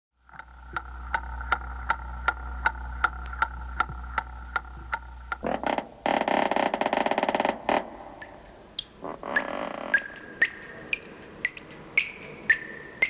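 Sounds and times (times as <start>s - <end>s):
low hum: 0.2s - 6.1s
clock ticking: 0.3s - 5.4s, 8.8s - 13.0s.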